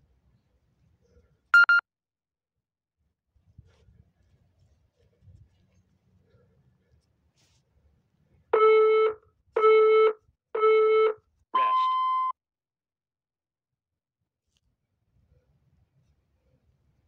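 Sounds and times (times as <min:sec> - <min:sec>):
timer short beeps: 0:01.6 - 0:01.8.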